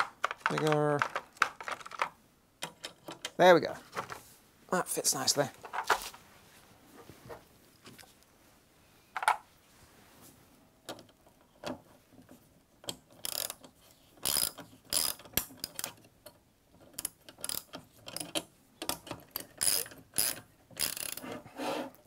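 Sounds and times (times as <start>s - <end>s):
socket ratchet clicking: 12.9s - 16.0s, 16.9s - 21.2s.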